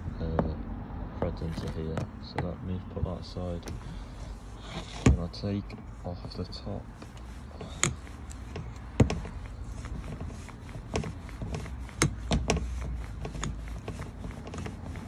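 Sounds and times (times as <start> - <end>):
sharp clicks and knocks of parts: 7.0 - 9.3.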